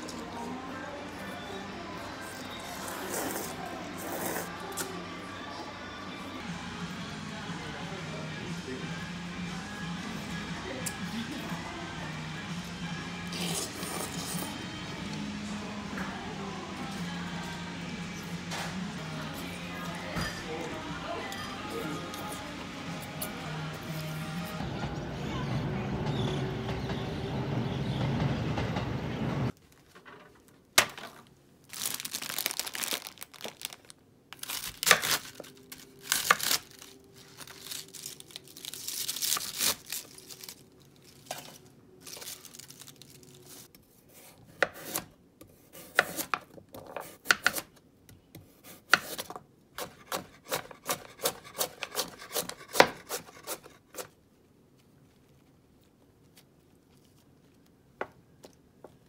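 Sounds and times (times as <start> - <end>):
background music: 0.0 - 29.5
rustling of leaves: 34.4 - 43.7
knife cutting vegetables on board: 43.9 - 54.1.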